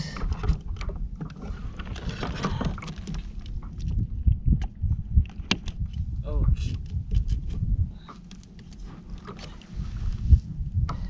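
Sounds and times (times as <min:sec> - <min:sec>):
wind rumble on microphone: 0:00.0 - 0:11.0
knocks and clicks against kayak hull: 0:00.2 - 0:09.7.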